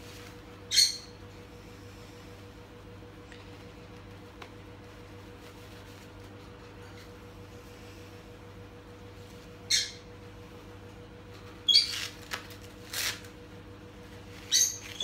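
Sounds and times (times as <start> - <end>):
steady low hum: 0.0 - 15.0
squeaky rustles: 11.4 - 13.3, 14.3 - 15.0.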